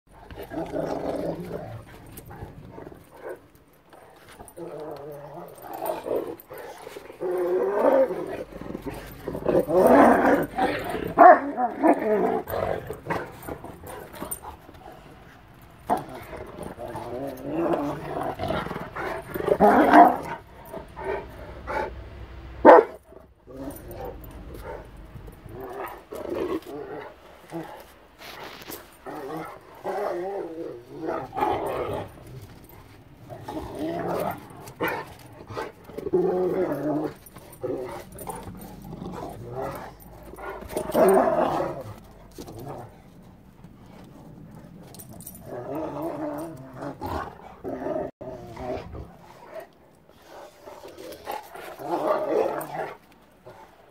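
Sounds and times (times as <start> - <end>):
dog growl-whining: 0.2 - 21.9, 23.4 - 49.8, 50.5 - 53.9
dog barking and yelping: 4.4 - 14.7, 19.0 - 21.9, 22.6 - 27.9.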